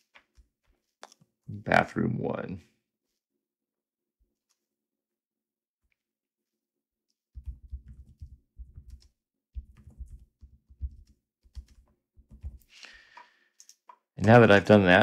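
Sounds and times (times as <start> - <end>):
computer keyboard typing: 7.4 - 14.0.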